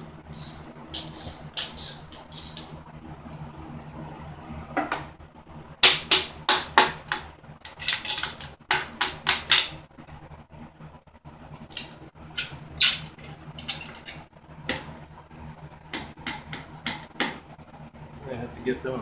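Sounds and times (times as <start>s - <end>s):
metal knocks and clinks: 0.4s - 2.8s.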